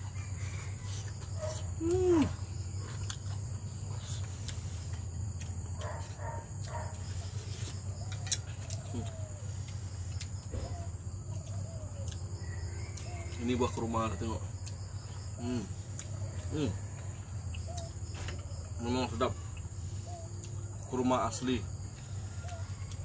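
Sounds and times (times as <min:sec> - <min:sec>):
insect drone: 0:00.0 - 0:23.0.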